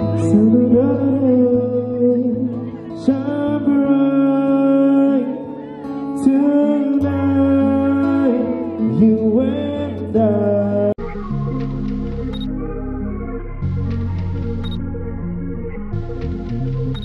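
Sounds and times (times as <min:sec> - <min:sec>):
man singing into a microphone: 0:00.0 - 0:11.0
acoustic guitar: 0:00.0 - 0:17.0.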